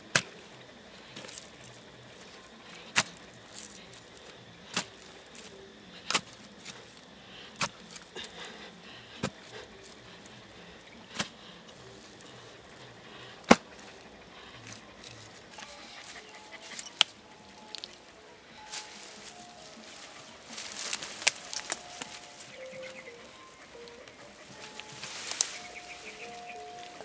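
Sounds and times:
digging tool striking wet soil: 0.1 - 0.5, 2.8 - 8.4, 9.2 - 10.0, 11.1 - 12.3, 13.2 - 13.9.

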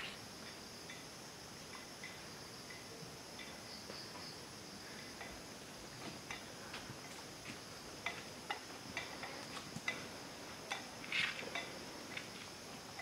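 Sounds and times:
high insect chorus: 0.0 - 13.0
footsteps on dirt path: 11.0 - 13.0.

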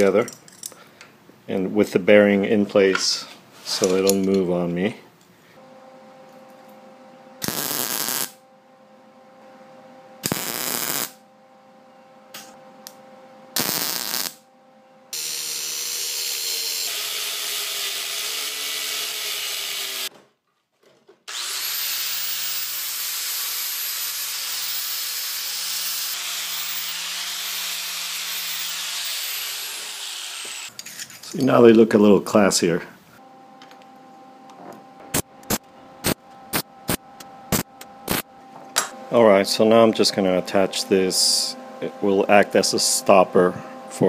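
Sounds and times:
welder tack welding: 7.4 - 8.4, 10.2 - 11.2, 13.6 - 14.4, 15.2 - 20.1, 21.3 - 30.9, 35.1 - 38.2
angle grinder grinding: 15.2 - 20.1, 21.3 - 31.0.

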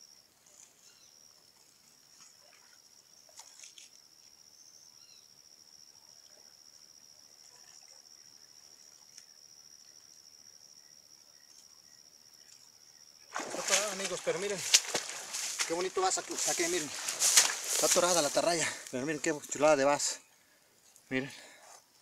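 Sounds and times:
high-pitched insect trill: 0.0 - 22.0
soft water splashes: 2.1 - 4.0, 13.3 - 19.0.

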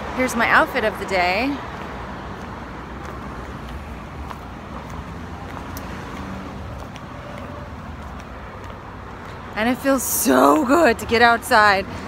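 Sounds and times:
low rumble of road traffic: 0.0 - 12.0
sandals clicking on pavement: 1.4 - 10.0.

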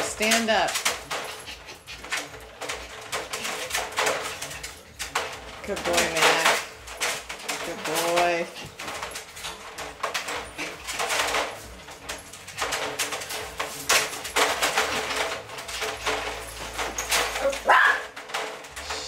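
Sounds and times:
puppies scuffling in a crate: 0.0 - 19.0
puppy high cry: 17.6 - 18.0.

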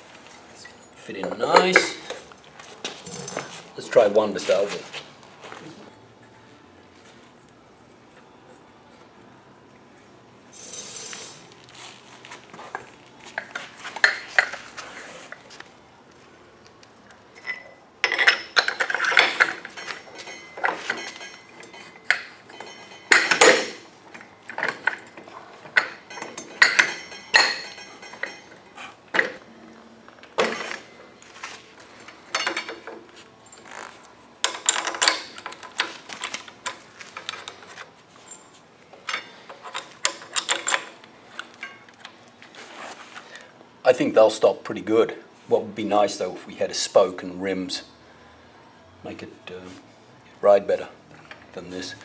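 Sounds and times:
metal tools clinking: 0.6 - 2.2, 17.3 - 29.4, 30.4 - 42.0.

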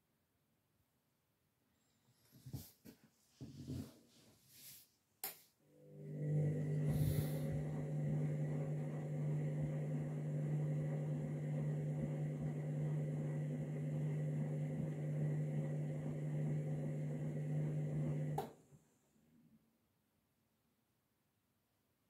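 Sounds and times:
washing machine motor humming: 5.7 - 18.5.

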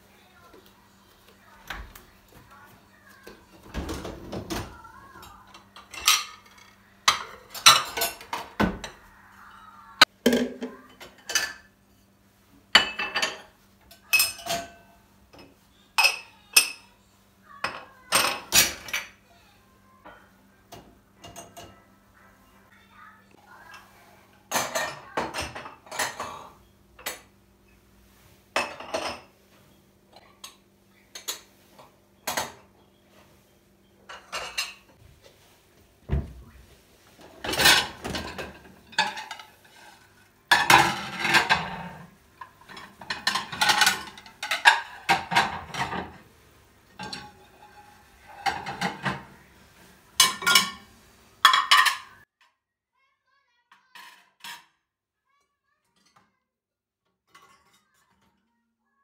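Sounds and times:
dishes clinking: 3.6 - 9.1, 10.3 - 12.1, 12.7 - 16.9, 17.6 - 19.2, 20.1 - 21.8, 24.5 - 27.3, 28.5 - 35.5, 37.2 - 46.2, 46.9 - 52.2, 57.3 - 58.5.

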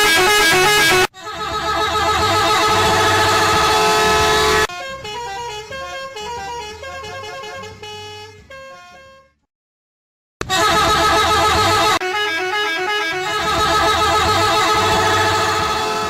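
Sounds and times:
loud harsh blaring: 0.0 - 5.1, 10.4 - 16.0.

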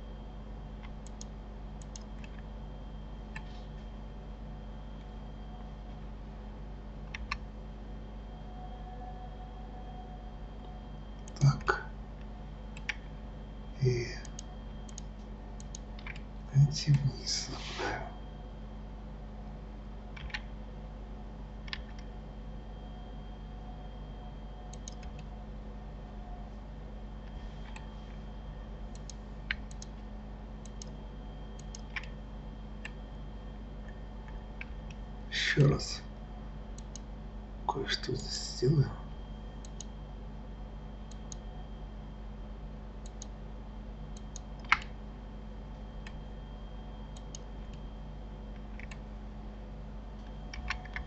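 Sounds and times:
steady low hum: 0.0 - 51.0
computer mouse and keyboard clicks: 0.8 - 2.5, 7.1 - 7.4, 11.2 - 13.1, 14.2 - 16.3, 20.1 - 20.5, 21.6 - 22.1, 24.7 - 25.3, 27.2 - 28.0, 28.9 - 30.0, 30.6 - 32.2, 36.7 - 37.1, 39.6 - 39.9, 41.1 - 41.4, 43.0 - 43.4, 44.1 - 45.0, 47.1 - 47.8, 48.5 - 49.0, 50.2 - 51.0
mouse and keyboard clicks: 14.2 - 16.2, 20.2 - 20.5, 24.7 - 25.3, 44.2 - 44.9.

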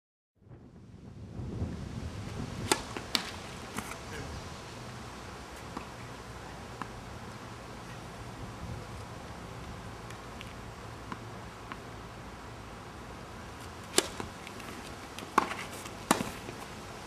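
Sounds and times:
tennis ball bouncing on court: 2.6 - 4.0, 10.0 - 11.9, 13.6 - 16.7
tennis ball struck by racket: 2.6 - 4.0, 13.5 - 16.7.

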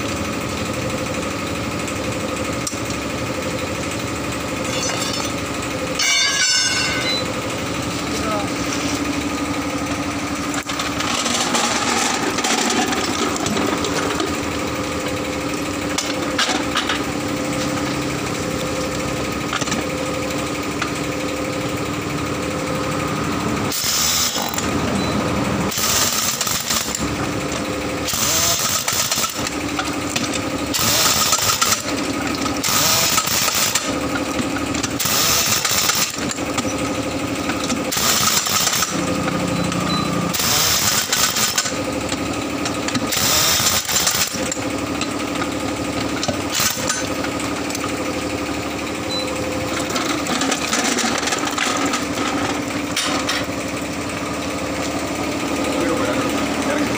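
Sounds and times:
machine hum: 0.0 - 56.9
pneumatic impact wrench hammering: 4.6 - 7.4, 10.5 - 14.5, 15.8 - 17.8, 19.5 - 19.9, 23.7 - 25.0, 25.6 - 48.0, 49.1 - 53.5.

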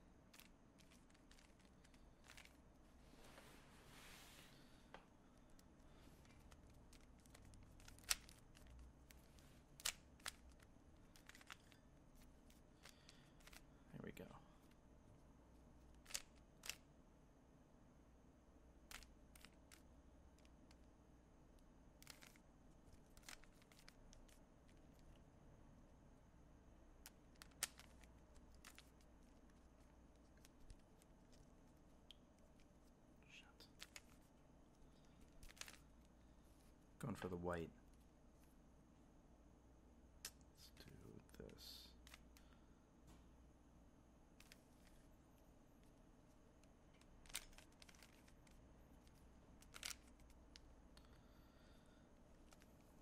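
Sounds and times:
puzzle cube clicking: 0.4 - 2.6, 6.2 - 13.7, 15.9 - 16.8, 22.0 - 25.1, 27.0 - 31.5, 33.7 - 34.3, 35.2 - 36.0, 47.0 - 50.7
sharp plastic clacks: 16.0 - 16.8.

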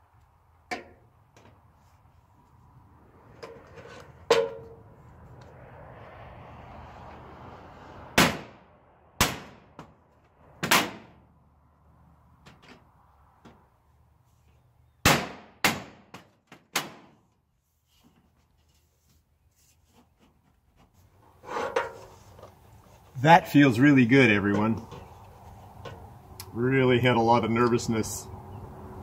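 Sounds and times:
hammer striking metal siding: 0.7 - 1.6, 3.5 - 4.8, 8.2 - 8.6, 9.2 - 10.0, 10.6 - 11.2, 15.0 - 17.4.

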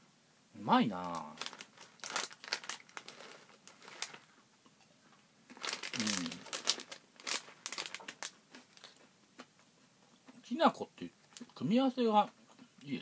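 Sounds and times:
plastic bag crinkling: 1.0 - 4.3, 5.5 - 9.0
person humming: 6.0 - 6.4.

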